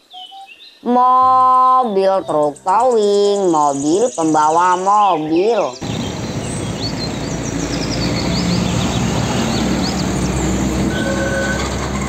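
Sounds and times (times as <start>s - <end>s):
bird chirps: 0.0s - 0.9s, 2.2s - 11.6s
road traffic noise: 5.8s - 12.0s
truck engine running: 5.8s - 12.0s.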